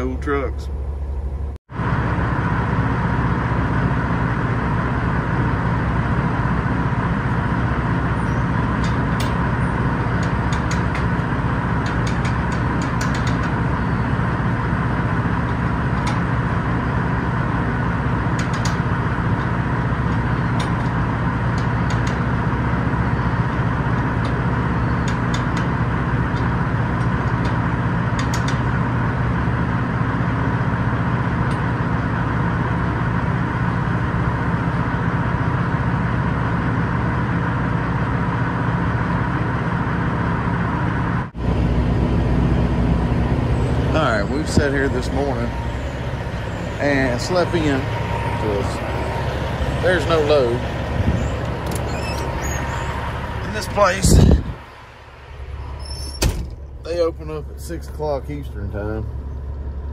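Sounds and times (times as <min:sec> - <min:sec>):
low hum: 0:00.0 - 0:59.9
machinery droning: 0:00.0 - 0:59.9
trailer gate clicks and clanks: 0:07.2 - 0:29.1, 0:43.8 - 0:54.8, 0:55.5 - 0:57.8.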